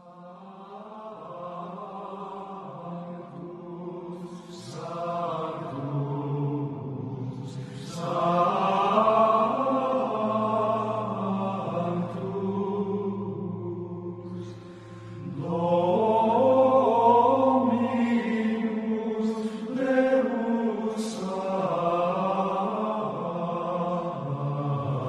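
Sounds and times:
chant-like droning music: 0.0s - 25.0s.

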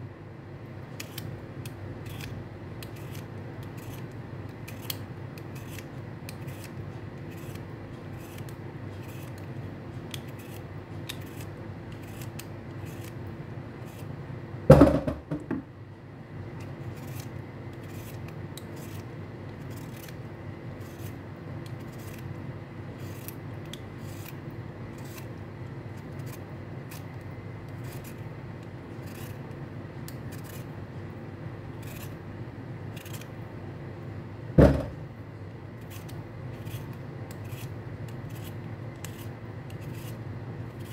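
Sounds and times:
peeler scraping beetroot skin: 0.9s - 14.2s, 16.6s - 30.8s, 31.7s - 32.2s, 32.9s - 33.3s, 35.8s - 40.9s
loud knock: 14.7s - 15.6s, 34.6s - 35.0s.

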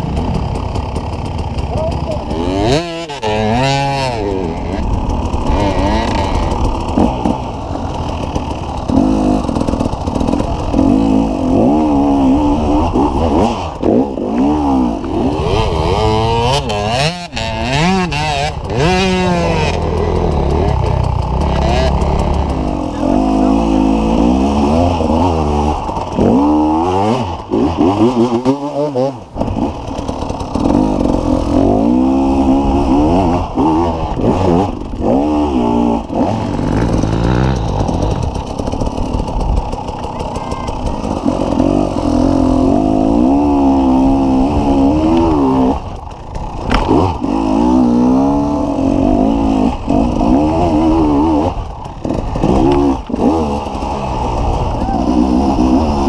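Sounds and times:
dirt bike engines revving: 0.0s - 56.0s.

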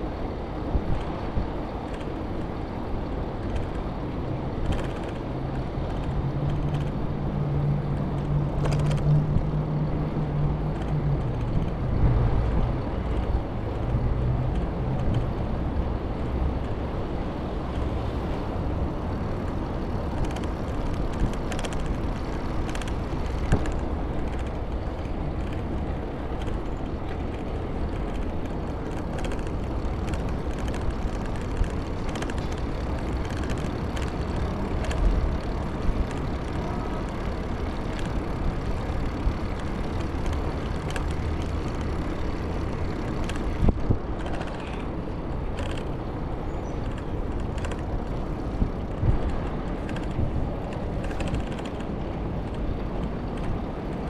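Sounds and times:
bicycle tyres rolling on pavement: 0.0s - 54.0s
low engine drone: 0.0s - 54.0s
wind noise: 0.0s - 54.0s
sharp clicks: 19.4s - 46.0s.

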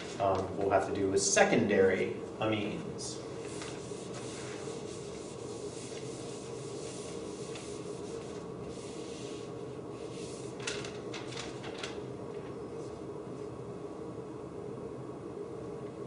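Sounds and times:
room hum: 0.0s - 16.0s
marker writing on whiteboard: 3.4s - 9.5s
eraser rubbing on whiteboard: 3.4s - 10.5s.

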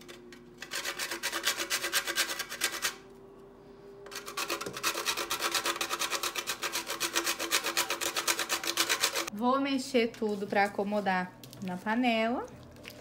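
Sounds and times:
nutmeg grated on metal grater: 0.6s - 3.0s, 4.1s - 9.3s.

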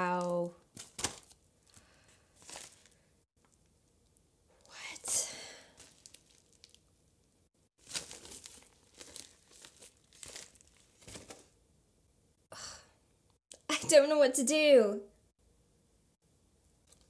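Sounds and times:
plastic mailer bag crinkling: 0.0s - 1.8s, 2.4s - 3.0s, 5.8s - 6.9s, 7.8s - 11.5s.

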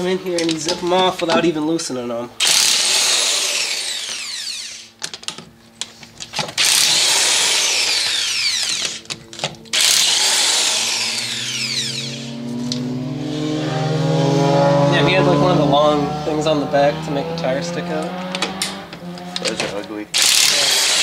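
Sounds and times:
impact driver buzzing: 2.4s - 5.3s, 6.4s - 13.4s, 18.2s - 21.0s.

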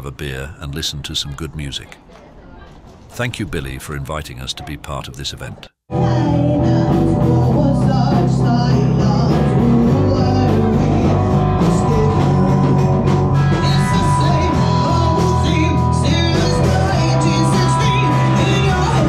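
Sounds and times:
drums: 5.9s - 19.0s
electric guitar: 5.9s - 19.0s
woman singing: 5.9s - 19.0s.

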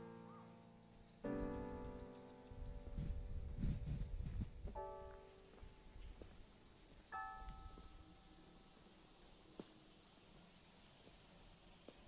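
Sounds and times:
faint steady hiss: 0.0s - 12.0s
faint ticks: 5.1s - 12.0s.

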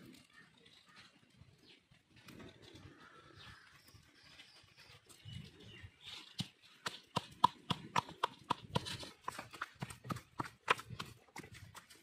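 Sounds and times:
stone pestle pounding in mortar: 6.4s - 12.0s.

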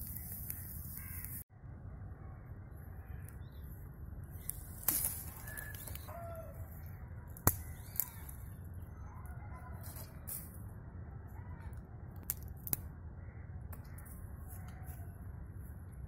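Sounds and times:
birds calling faintly: 0.0s - 16.0s
steady low rumble: 0.0s - 16.0s
tree branch snapping: 4.4s - 6.4s, 7.3s - 8.4s.

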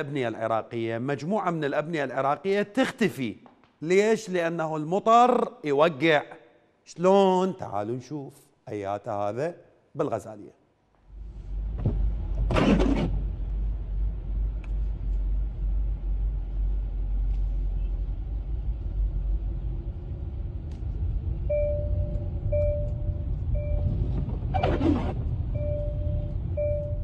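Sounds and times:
car rumble from inside cabin: 11.1s - 27.0s
short beep: 21.5s - 24.8s, 25.5s - 27.0s.

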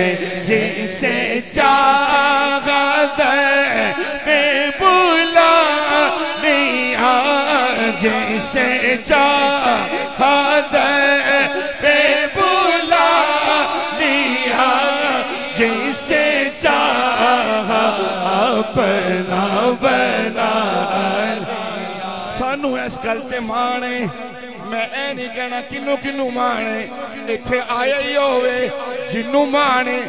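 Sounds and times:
men singing unaccompanied: 0.0s - 23.0s.

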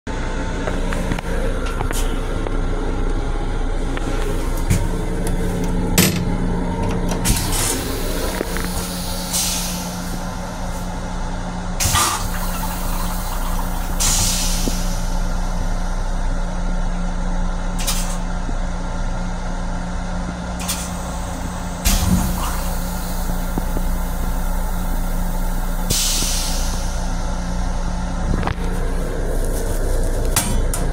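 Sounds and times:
train running rumble: 0.1s - 30.9s
air hiss bursts: 7.4s - 10.2s, 11.8s - 15.1s, 25.9s - 27.0s.

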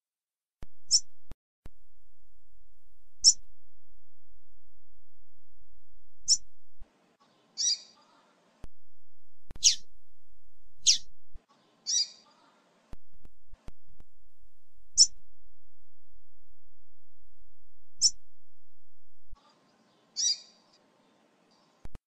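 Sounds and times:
bird chirping: 3.2s - 3.4s, 6.2s - 6.5s, 7.2s - 8.3s, 9.6s - 9.9s, 10.8s - 12.5s, 15.0s - 15.2s, 18.0s - 18.2s, 19.4s - 21.9s.

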